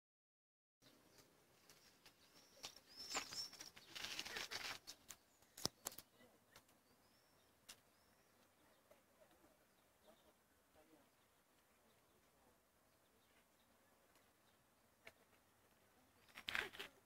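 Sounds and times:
faint rustling: 1.1s - 6.8s
high bird chirps: 1.8s - 4.2s
sharp clicks: 4.8s - 6.8s.

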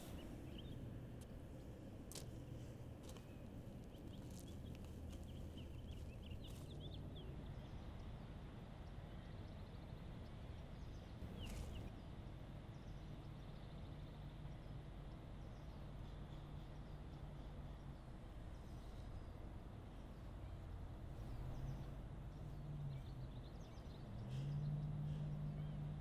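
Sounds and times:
bird chirping: 0.0s - 0.9s.

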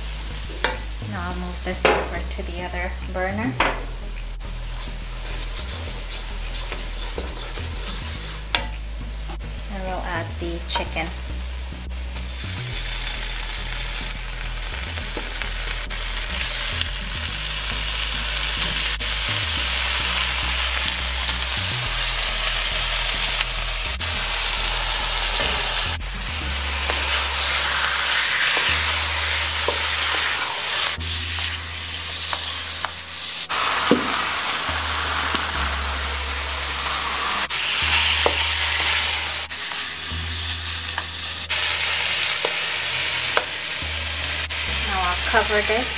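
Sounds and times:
chicken sizzling in a wok: 0.0s - 45.9s
spatula scraping a pan: 4.7s - 8.7s, 26.6s - 32.9s, 37.4s - 42.6s.

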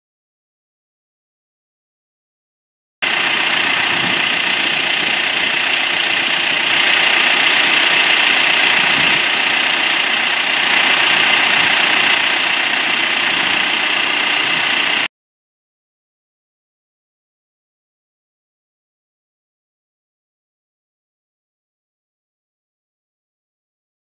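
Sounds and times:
tractor diesel engine idling: 3.0s - 15.1s.

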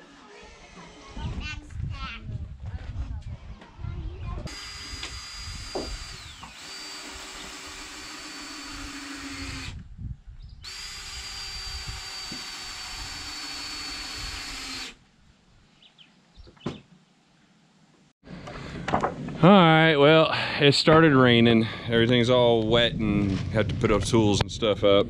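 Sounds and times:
power drill driving screws: 4.5s - 9.8s, 10.6s - 15.0s.

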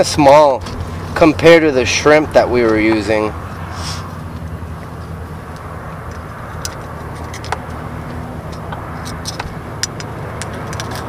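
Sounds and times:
low motor hum: 0.1s - 11.0s
pliers clicking: 8.5s - 11.0s.

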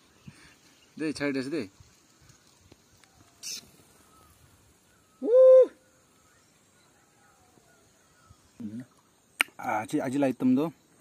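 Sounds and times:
brief rustling hiss: 1.8s - 4.4s.

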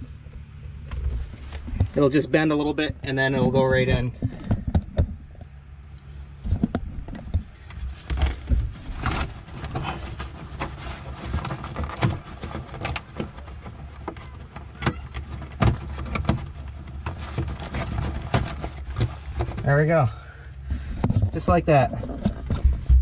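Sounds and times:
plastic hose scraping and rustling: 0.7s - 23.0s.

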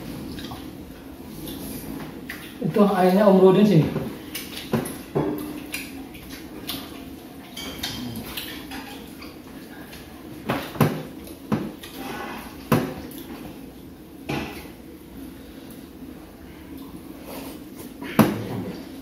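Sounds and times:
cutlery clinking on plates: 7.5s - 9.1s.

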